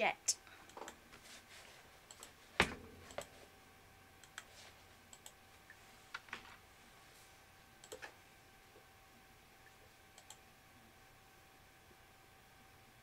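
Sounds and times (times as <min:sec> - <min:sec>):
mouse and keyboard clicks: 0:05.1 - 0:05.4, 0:07.8 - 0:08.2, 0:10.2 - 0:10.4.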